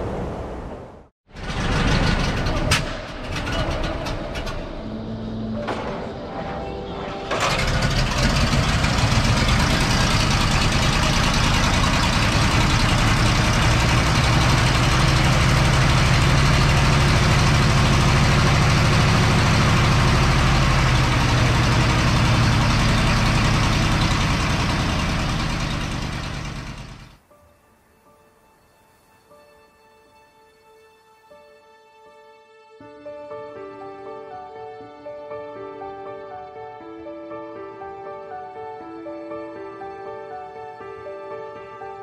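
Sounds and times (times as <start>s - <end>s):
car engine idling: 7.4s - 27.2s.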